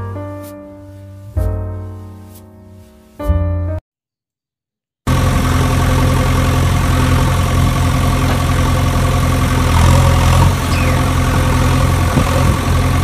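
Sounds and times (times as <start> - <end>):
diesel engine idling: 5.1 - 13.0.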